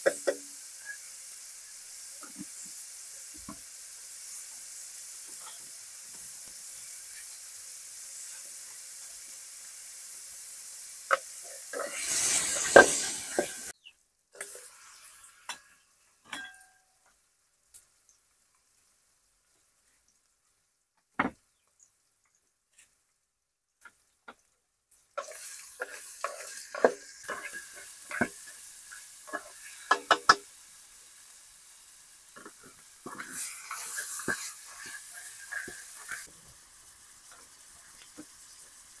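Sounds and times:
food sizzling in a pan: 0.0s - 23.1s, 23.8s - 39.0s.

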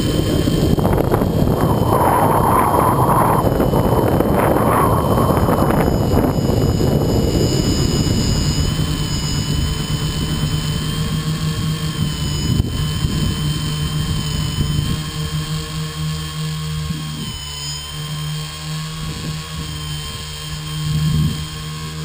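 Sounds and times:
wind buffeting microphone: 0.0s - 15.4s
drone motors whining: 0.0s - 22.0s.

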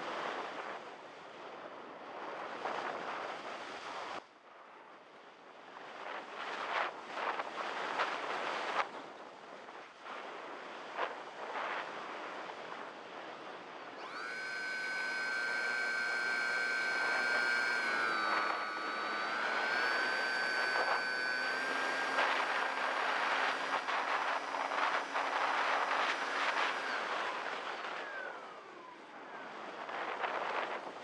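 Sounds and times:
electric motor whine: 14.0s - 30.3s.

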